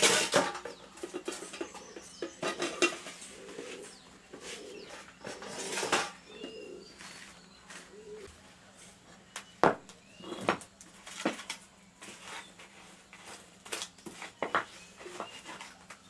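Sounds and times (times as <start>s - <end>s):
kitchenware clattering: 0.0s - 3.8s, 4.8s - 6.6s
small birds chirping: 0.6s - 8.3s, 9.1s - 10.8s, 14.2s - 16.0s
dove cooing: 1.1s - 8.3s.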